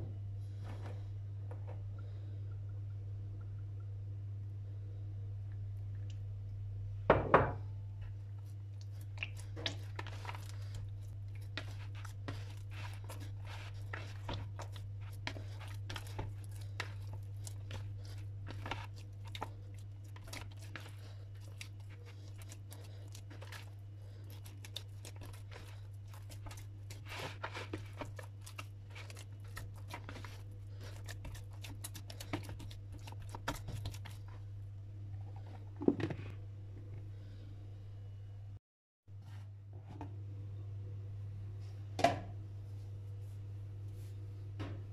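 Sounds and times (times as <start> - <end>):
low hum: 0.0 - 27.0
hands kneading sticky dough: 8.1 - 34.7.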